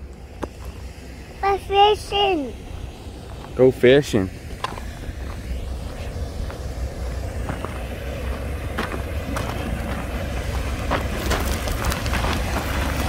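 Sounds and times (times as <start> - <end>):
wind rumbling on microphone: 2.5 - 13.0
footsteps crunching on gravel: 4.6 - 13.0.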